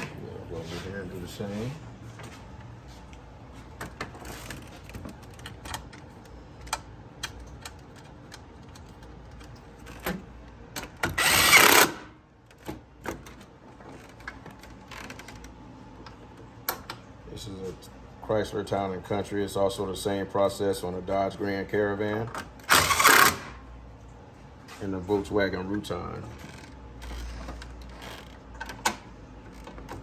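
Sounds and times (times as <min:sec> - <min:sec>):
cordless power tool burst: 0:11.2 - 0:12.1, 0:22.7 - 0:23.6.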